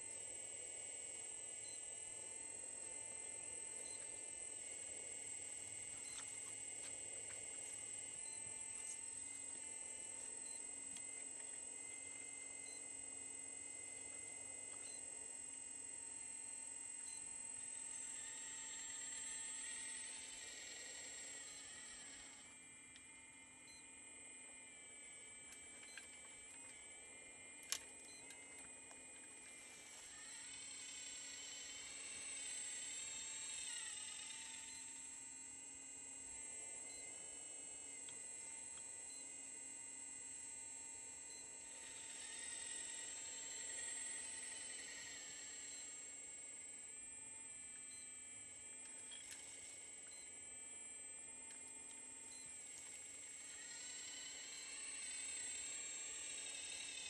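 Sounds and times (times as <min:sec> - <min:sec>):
hydraulic pump whine: 0:17.1 - 0:23.0, 0:25.0 - 0:39.0, 0:41.1 - 0:50.9, 0:51.5 - 0:57.0.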